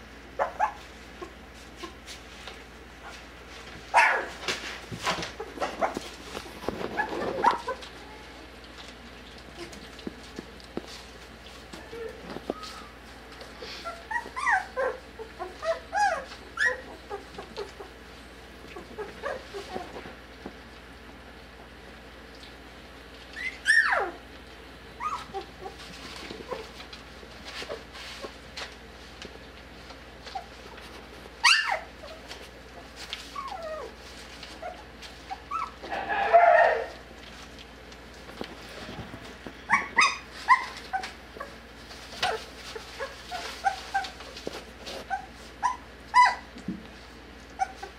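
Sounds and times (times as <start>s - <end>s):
puppies whining and yipping: 0.4s - 2.0s, 5.2s - 8.4s, 11.5s - 18.0s, 18.6s - 20.2s, 23.2s - 28.5s, 30.2s - 36.9s, 39.6s - 46.6s, 47.4s - 47.9s.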